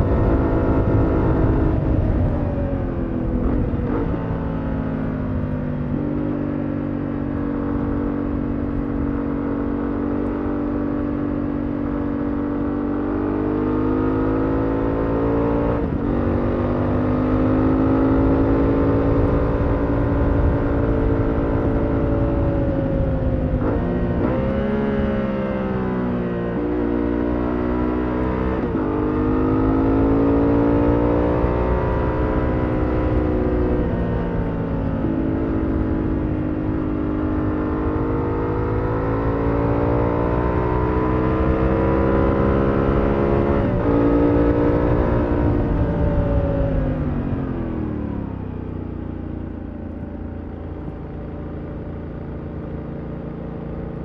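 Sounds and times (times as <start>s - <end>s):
wind on microphone: 0.0s - 4.5s, 18.1s - 26.2s, 30.9s - 48.4s
motorcycle engine revving: 0.0s - 54.0s.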